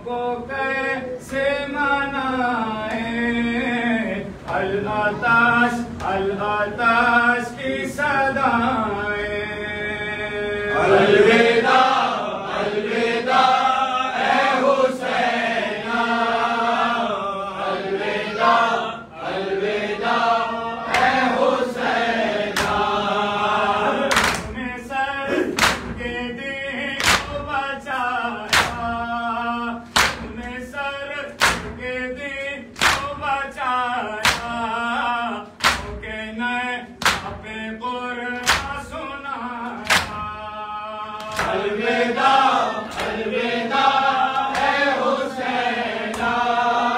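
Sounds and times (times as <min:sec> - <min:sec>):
men chanting in chorus: 0:00.0 - 0:46.9
hands slapping bare chests: 0:24.1 - 0:24.5, 0:25.6 - 0:26.0, 0:28.5 - 0:28.9, 0:30.0 - 0:30.4, 0:32.8 - 0:33.1, 0:35.6 - 0:36.0, 0:37.0 - 0:37.4, 0:38.4 - 0:38.8, 0:39.8 - 0:40.2, 0:41.2 - 0:41.6, 0:44.4 - 0:44.8.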